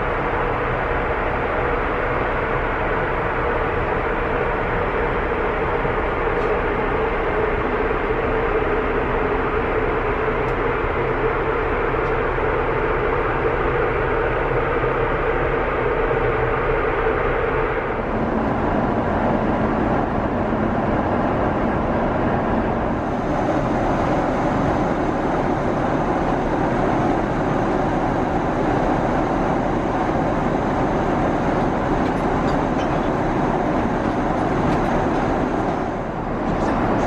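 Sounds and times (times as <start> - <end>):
airplane cabin air rush and engine drone: 0.0 - 37.0.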